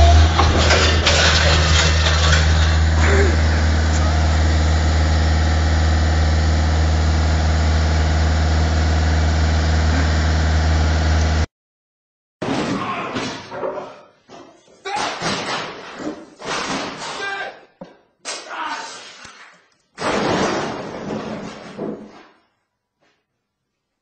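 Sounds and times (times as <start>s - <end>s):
engine idling: 0.0s - 11.5s.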